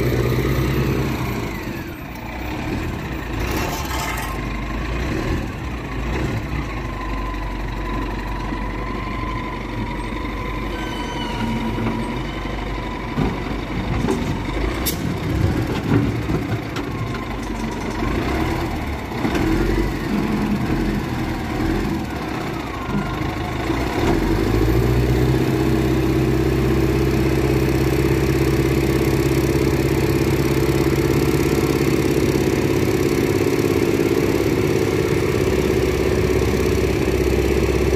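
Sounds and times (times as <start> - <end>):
diesel engine running: 0.0 - 37.9
bucket scraping dirt: 3.4 - 4.5.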